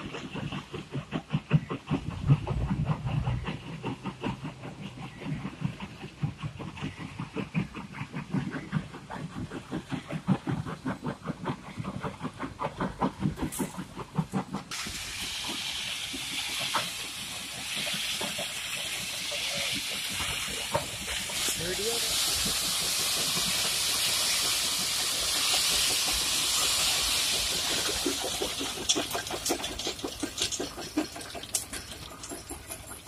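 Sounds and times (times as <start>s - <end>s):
heavy machinery clattering: 27.8s - 33.0s.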